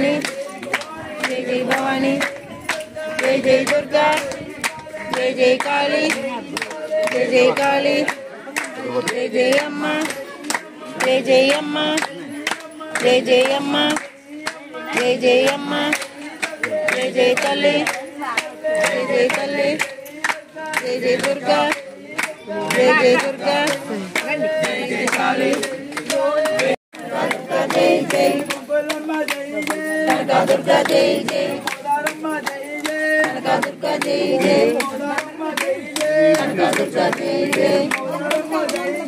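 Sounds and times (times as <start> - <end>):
group singing: 0.0 - 39.0
rhythmic hand clapping: 0.0 - 39.0.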